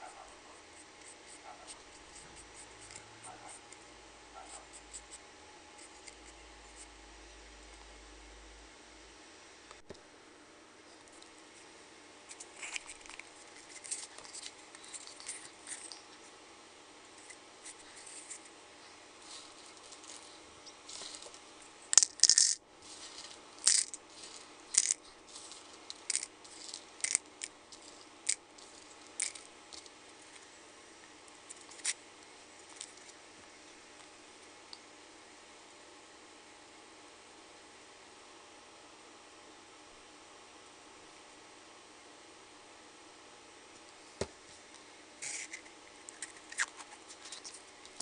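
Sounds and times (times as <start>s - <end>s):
beans rattling into plastic cup: 19.2s - 30.4s.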